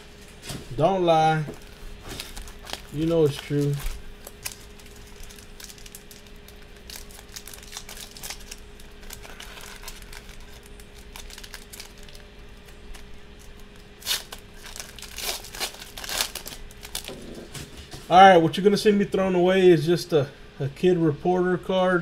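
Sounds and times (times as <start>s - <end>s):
foil wrapper crinkling: 0.1s - 17.9s
foil wrapper tearing: 1.6s - 17.7s.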